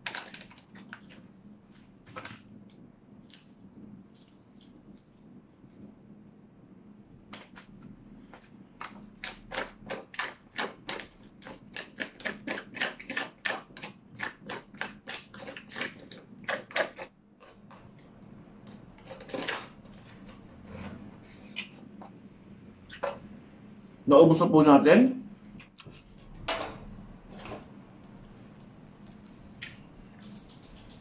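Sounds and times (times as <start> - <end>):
fork scraping foil tray: 19.0 - 21.5.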